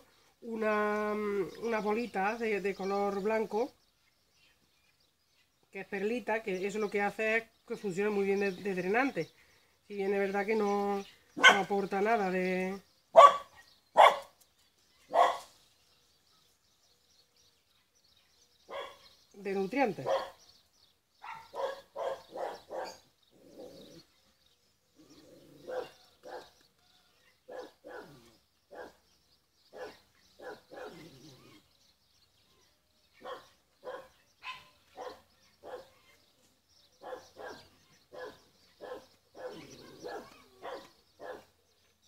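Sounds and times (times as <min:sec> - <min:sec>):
dog barking: 0:11.4 - 0:11.7, 0:13.1 - 0:14.3, 0:15.1 - 0:15.5, 0:18.7 - 0:19.0, 0:20.0 - 0:20.4, 0:21.2 - 0:23.1, 0:25.6 - 0:26.6, 0:27.4 - 0:29.0, 0:29.7 - 0:31.0, 0:33.2 - 0:36.0, 0:37.0 - 0:41.5.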